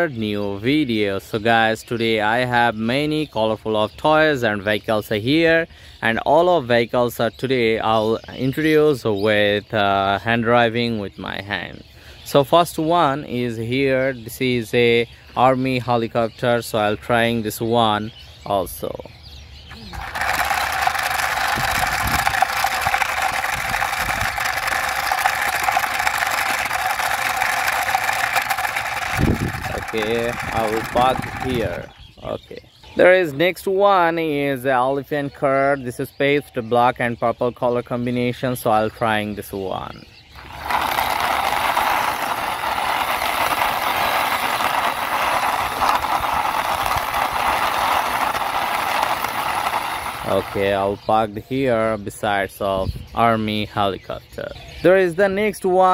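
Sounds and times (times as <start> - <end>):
toy helicopter rotor whirring: 19.7 - 33.0, 40.3 - 51.0.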